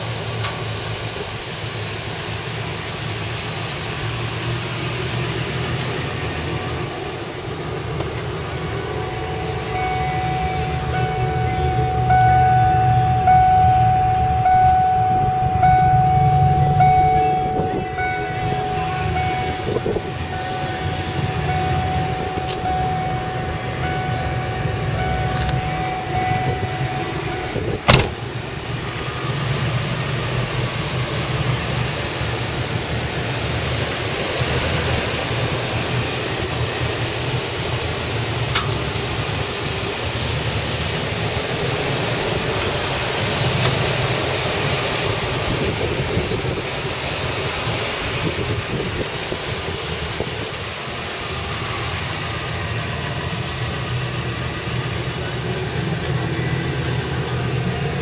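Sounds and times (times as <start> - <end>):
van engine idling: 0.0 - 58.0
steady high tone: 8.4 - 29.5
loud thud: 27.8 - 28.2.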